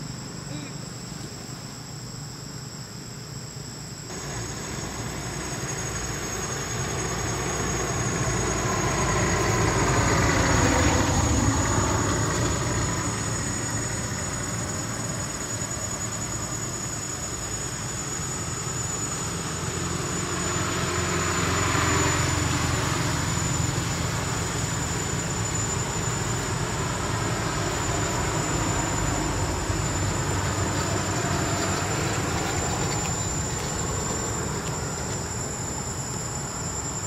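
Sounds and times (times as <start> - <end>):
high-pitched insect drone: 0.0 - 37.0
vehicles passing: 20.2 - 36.8.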